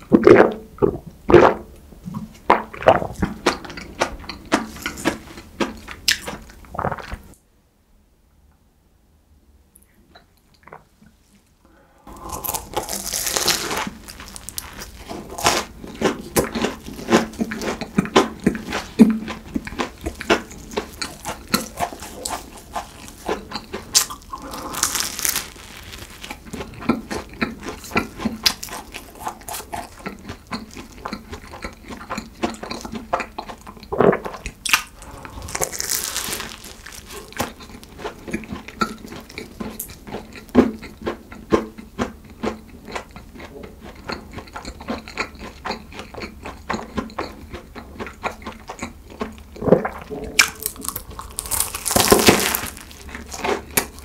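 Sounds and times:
pastry crunching and chewing: 0:02.6 - 0:07.4, 0:12.1 - 0:54.0.

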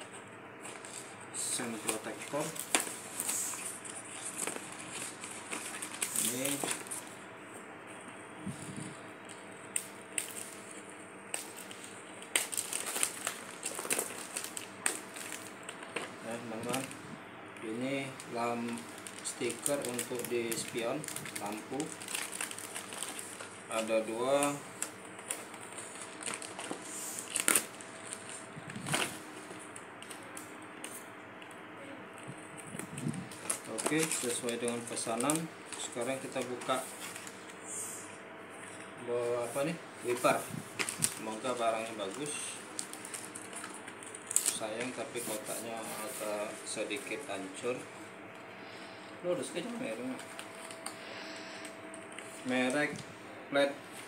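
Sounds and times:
plastic and cardboard rustling: 0:00.6 - 0:07.1, 0:10.2 - 0:17.0, 0:17.7 - 0:30.4, 0:32.5 - 0:37.4, 0:38.6 - 0:47.8
plastic packaging crinkling: 0:00.6 - 0:07.2, 0:08.6 - 0:17.0, 0:17.6 - 0:31.0, 0:32.4 - 0:37.6, 0:38.6 - 0:47.8, 0:49.4 - 0:53.0.

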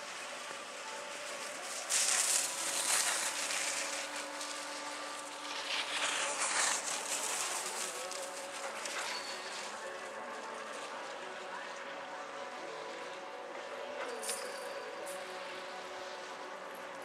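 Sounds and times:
skis scraping over snow: 0:00.0 - 0:17.0.

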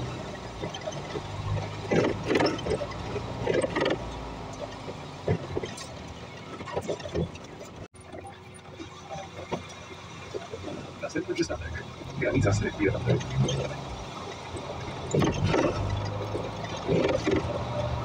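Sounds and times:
rattles and clatters: 0:00.0 - 0:18.0
bus tyres hissing on wet road: 0:08.3 - 0:18.0.

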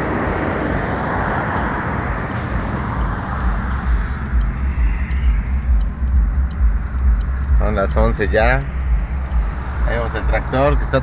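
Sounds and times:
low rumble: 0:00.0 - 0:11.0
passing road traffic: 0:00.0 - 0:11.0
hazard light flasher ticks: 0:02.9 - 0:11.0.

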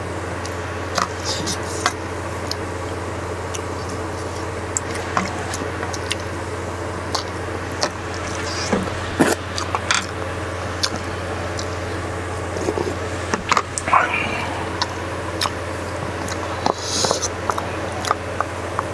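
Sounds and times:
low hum: 0:00.0 - 0:18.9
wet squishing: 0:10.7 - 0:18.2.

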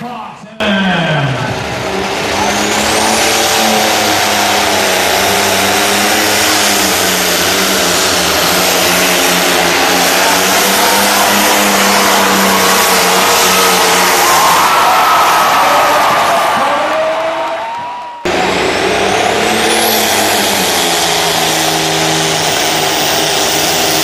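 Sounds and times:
tractor engine at full power: 0:00.0 - 0:17.4, 0:18.2 - 0:24.0
high whine: 0:00.6 - 0:16.4.

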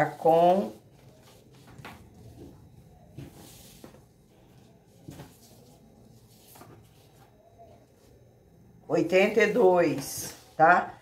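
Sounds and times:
fabric rustling: 0:00.0 - 0:08.1.

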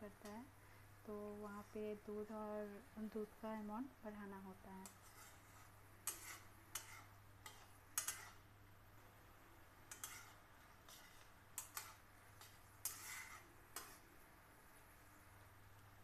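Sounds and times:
metal spatula scraping metal pan: 0:04.8 - 0:08.4, 0:09.9 - 0:14.1.

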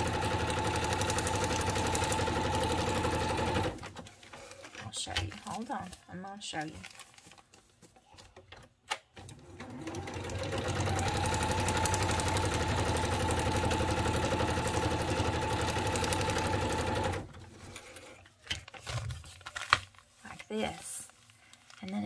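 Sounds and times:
electric sewing machine stitching: 0:00.0 - 0:04.0, 0:09.2 - 0:17.5.

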